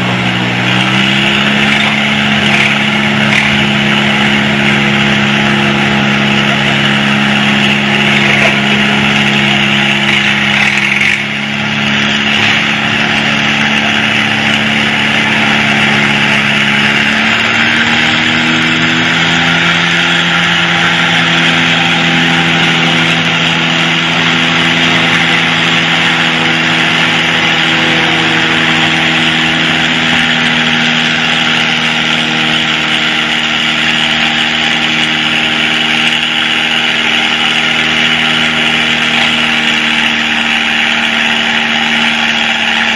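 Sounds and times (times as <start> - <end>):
tractor engine running: 0.0 - 42.9.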